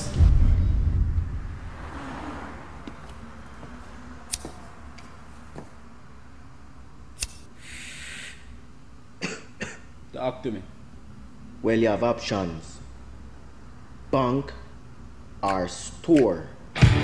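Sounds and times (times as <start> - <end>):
lighter click: 7.2 - 7.5
lighter gas hiss: 7.2 - 8.5.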